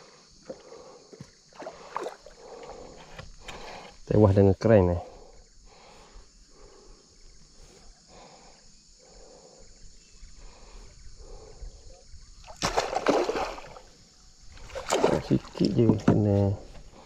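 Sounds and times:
faint water sounds: 0.0 - 17.0
fish splashing at surface: 12.5 - 13.8, 14.6 - 15.6.

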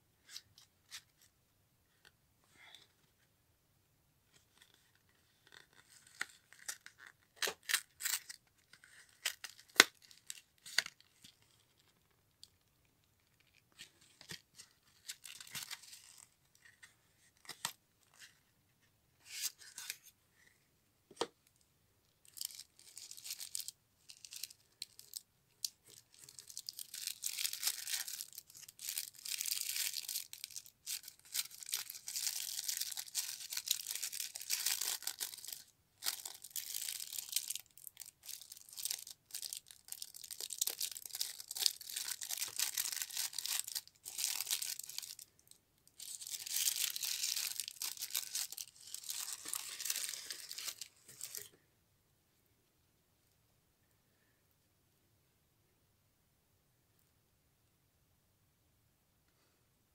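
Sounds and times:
tissue paper rustling and crinkling: 26.1 - 45.2, 46.0 - 51.5.

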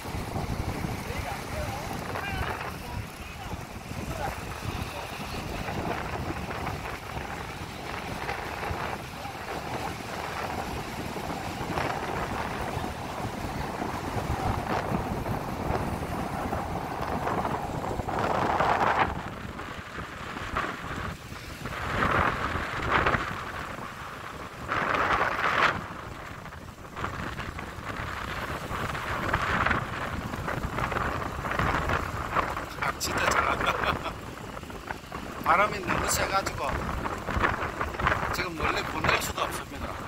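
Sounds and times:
wind buffeting microphone: 0.0 - 40.0.

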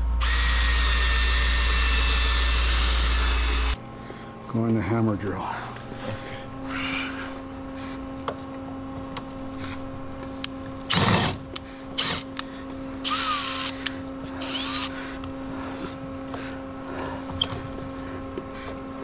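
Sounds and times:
steady low hum: 0.0 - 19.0
power drill driving screws: 0.2 - 3.8, 10.9 - 11.4, 12.0 - 12.3, 13.0 - 13.7, 14.4 - 14.9.

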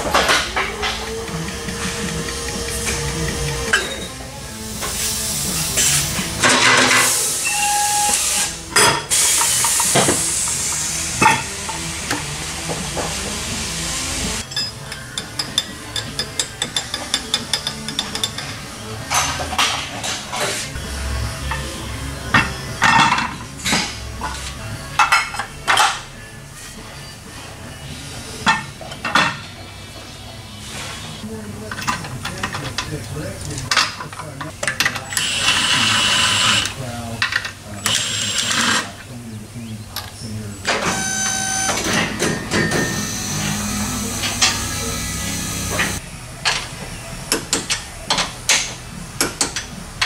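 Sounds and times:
steady hiss: 4.6 - 14.4
short beep: 7.4 - 8.4
metal clanks and clinks: 14.4 - 20.4.

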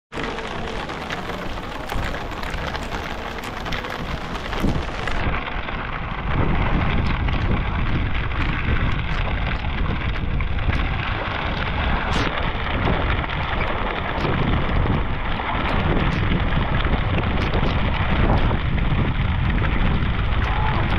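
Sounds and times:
heavy rain on water: 0.1 - 20.9
low rumble: 0.2 - 20.9.

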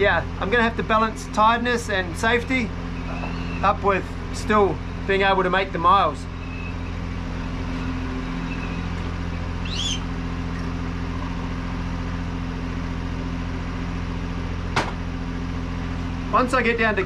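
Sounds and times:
diesel engine droning: 0.0 - 17.0
short rising squeak: 3.0 - 3.6, 6.4 - 10.8.

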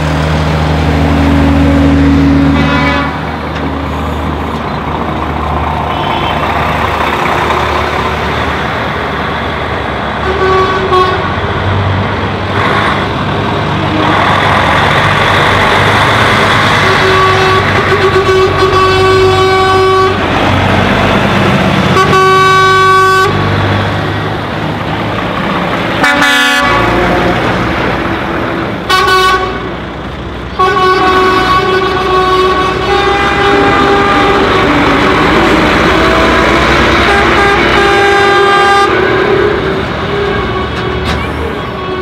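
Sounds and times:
lorry engines driving past: 0.0 - 42.0
lorry horn blasts: 1.2 - 3.3, 16.8 - 20.2, 21.9 - 23.4, 26.0 - 27.2, 28.9 - 29.7, 30.6 - 42.0.

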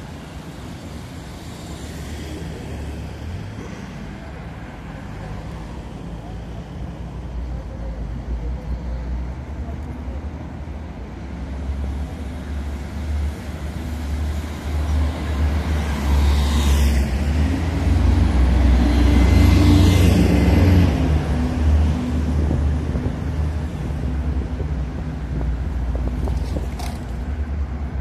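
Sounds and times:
low traffic rumble: 0.0 - 28.0
bus driving past: 10.9 - 26.1.

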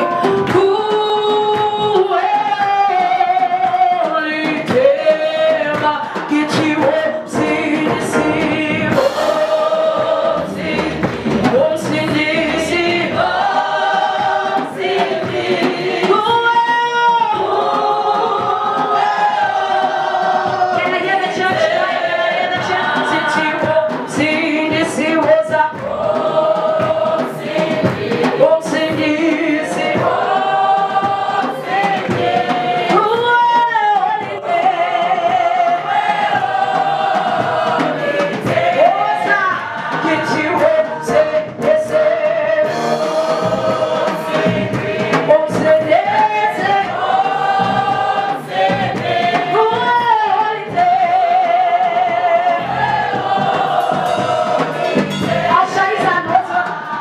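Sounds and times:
woman singing into a microphone: 0.0 - 9.4, 10.4 - 26.0, 28.2 - 31.8, 32.8 - 36.2, 38.6 - 42.8, 45.2 - 47.0, 49.3 - 52.6, 55.5 - 57.0
choir singing in harmony: 0.0 - 57.0.

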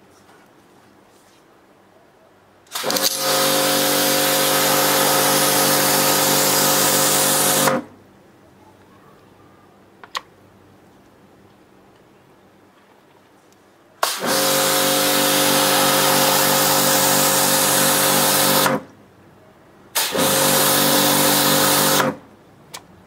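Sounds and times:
pressure washer water jet hissing: 2.7 - 7.8, 14.0 - 18.8, 20.0 - 22.2
pump motor hum: 2.7 - 7.9, 14.0 - 18.8, 20.0 - 22.2.

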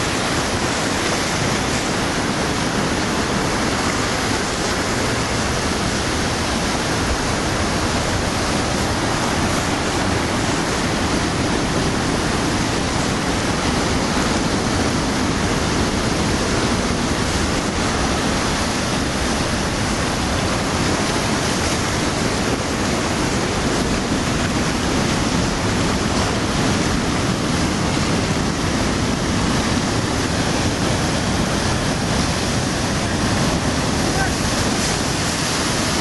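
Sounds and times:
ocean surf breaking over rocks: 0.0 - 36.0.

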